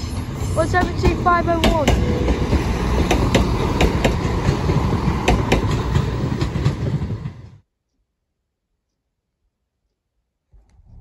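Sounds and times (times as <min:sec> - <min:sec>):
train rumble: 0:00.0 - 0:07.6
wheels clacking over rail joints: 0:00.7 - 0:07.4.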